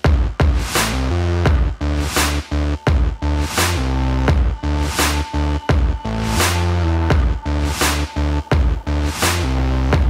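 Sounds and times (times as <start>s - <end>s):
electronic music with deep bass: 0.0s - 10.0s
sharp snare-like hit: 0.4s - 1.1s.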